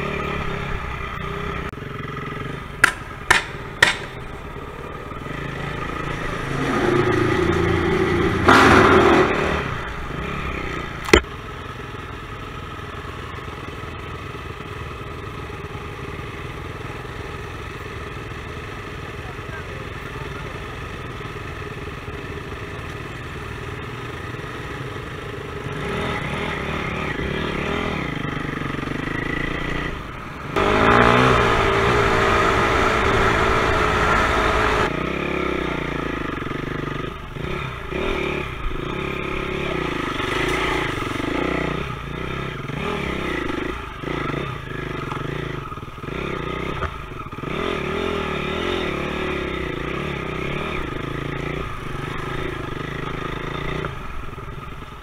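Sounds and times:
dirt bike engine revving: 0.0 - 11.2, 25.6 - 54.7.

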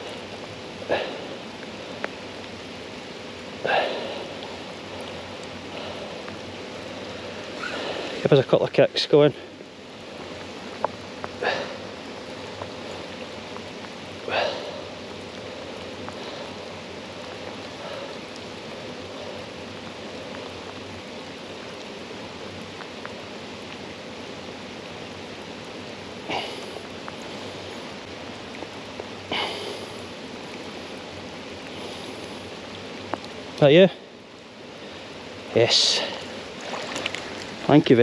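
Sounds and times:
river water running: 0.0 - 38.0
short splashes: 36.0 - 37.8.

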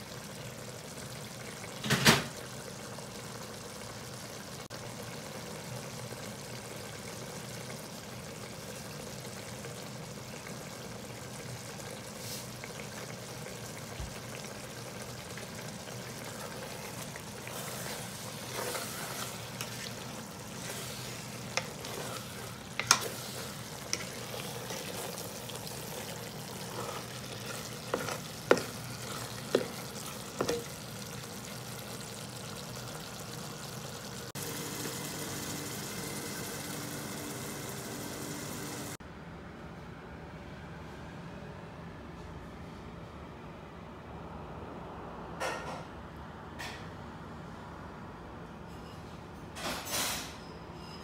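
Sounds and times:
food sizzling and bubbling in pot: 0.0 - 39.0.

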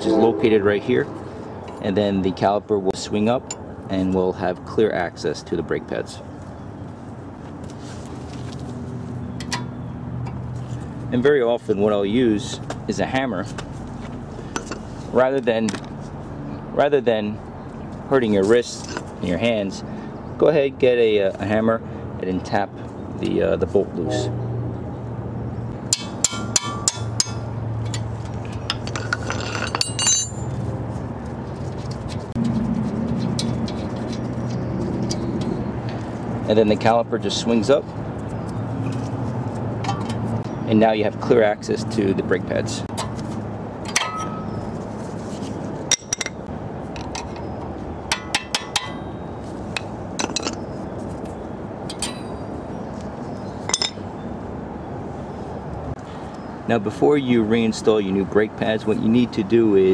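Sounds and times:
metallic clinks of brake pads: 9.4 - 10.4, 25.9 - 30.6, 39.8 - 40.7, 43.8 - 44.7, 45.9 - 50.7, 53.7 - 54.1
hammer striking wrench: 25.9 - 28.0, 28.7 - 30.5, 48.1 - 49.1.

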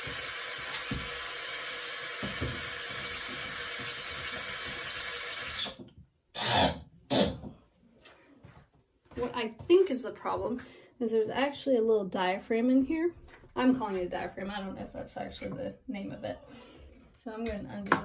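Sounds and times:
water hissing through toilet valve: 0.0 - 5.8.

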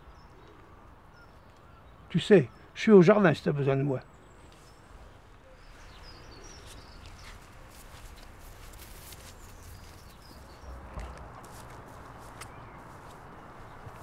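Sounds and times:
small birds chirping: 0.0 - 14.0
soft footsteps walking: 5.7 - 14.0.

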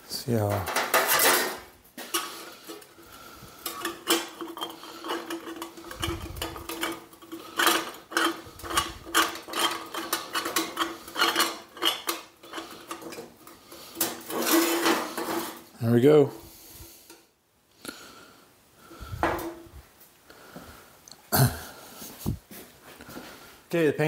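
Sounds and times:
glass scraping against metal: 0.8 - 15.7.

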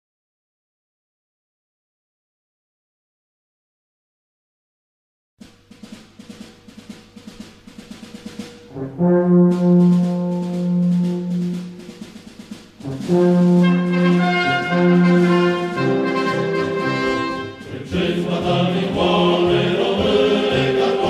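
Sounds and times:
rhythmic drumming: 5.4 - 21.0
brass fanfare: 8.3 - 21.0.

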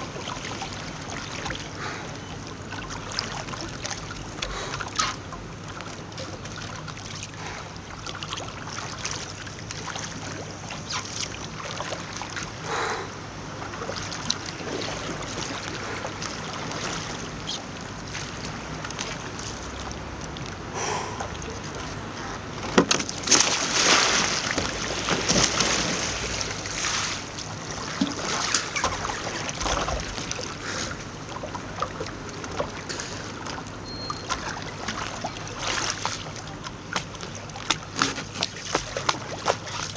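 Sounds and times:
paddle splashing in water: 0.0 - 39.9.

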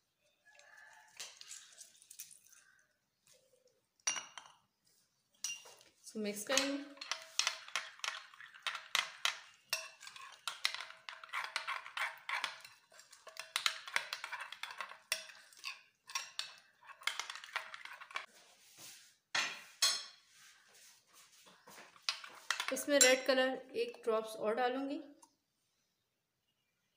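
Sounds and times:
metal spoon scraping ceramic bowl: 6.5 - 18.3.

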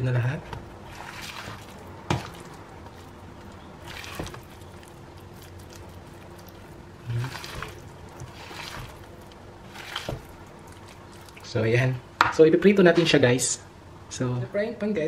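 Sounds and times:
spoon stirring wet food in bowl: 0.4 - 11.8.

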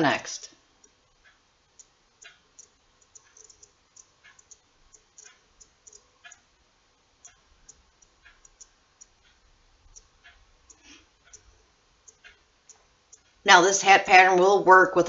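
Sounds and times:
crochet hook clicking: 1.8 - 6.4.

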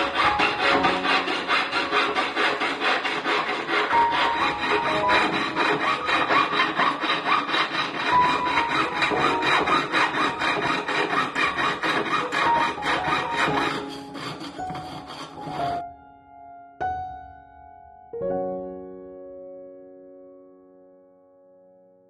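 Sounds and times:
piercing saw rasping through metal: 0.0 - 15.8.

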